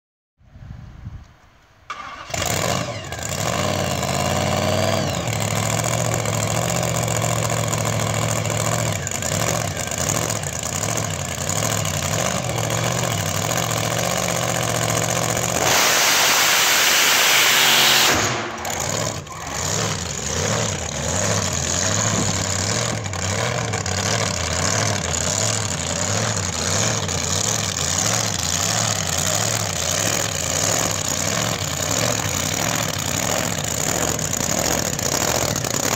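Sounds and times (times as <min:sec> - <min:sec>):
drag car engine idling: 0:03.1 - 0:35.9
loud hissing rush: 0:15.6 - 0:18.9.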